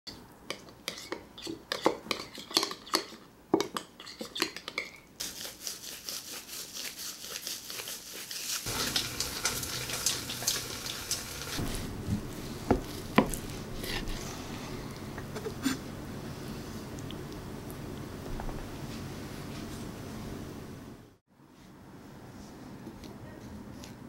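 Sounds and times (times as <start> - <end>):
crackling hiss: 8.6 - 15.2.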